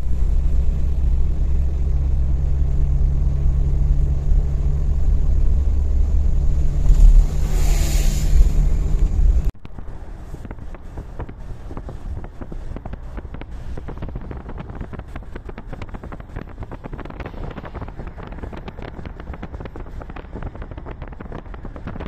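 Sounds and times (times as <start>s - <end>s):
traffic on a wet road: 0.0s - 22.0s
vehicle rumble: 0.0s - 22.0s
wind buffeting microphone: 5.4s - 22.0s.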